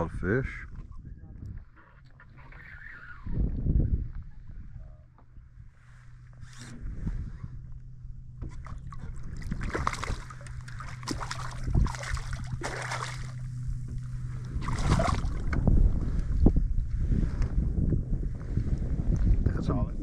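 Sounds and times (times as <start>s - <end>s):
steady low hum: 0.0s - 20.0s
fish splashing at water surface: 8.6s - 13.5s, 14.6s - 15.5s.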